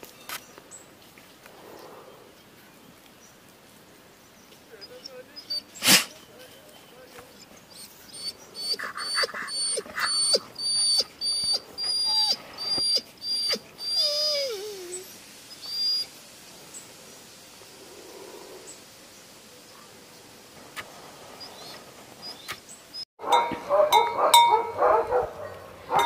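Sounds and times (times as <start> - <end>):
dog whining: 7.8 - 16.1.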